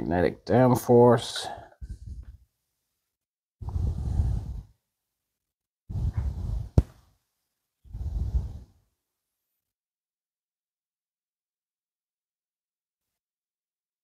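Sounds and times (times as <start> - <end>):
breaths close to microphone: 1.4 - 2.4, 3.6 - 4.8, 5.9 - 7.0, 7.9 - 8.8.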